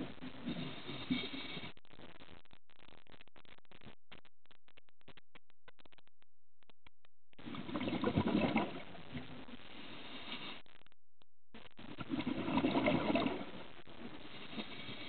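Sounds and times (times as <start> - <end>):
faint underwater noise: 0.0 - 6.0, 6.7 - 15.0
underwater bubbles rushing: 7.4 - 9.5, 11.8 - 13.6.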